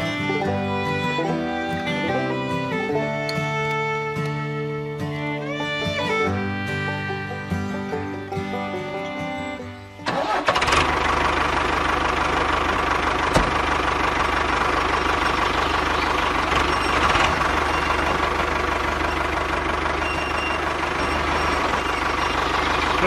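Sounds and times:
toy tractor engine sound effect: 0:05.5 - 0:23.0.

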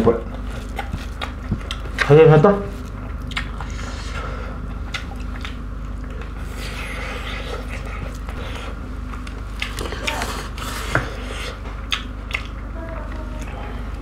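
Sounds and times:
steady low hum: 0:00.0 - 0:14.0
chewing and mouth smacks: 0:00.3 - 0:02.2, 0:02.8 - 0:04.1, 0:04.8 - 0:12.7.

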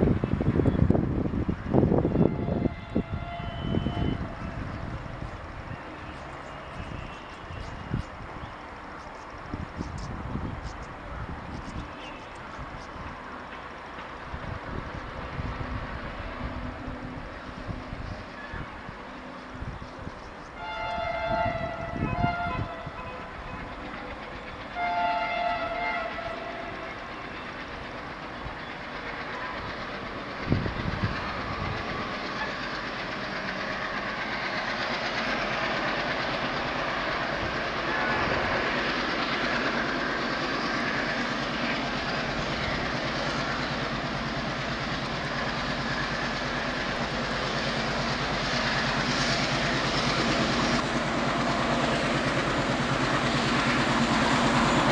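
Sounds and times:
locomotive engine: 0:00.0 - 0:54.9
train running noise: 0:00.0 - 0:54.9
locomotive horn blasts: 0:02.0 - 0:04.4, 0:20.6 - 0:23.6, 0:24.7 - 0:27.1.

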